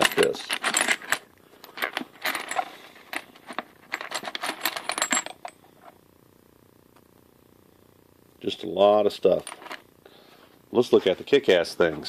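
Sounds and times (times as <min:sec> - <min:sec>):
metal tool bits clinking: 0:00.0 - 0:05.6.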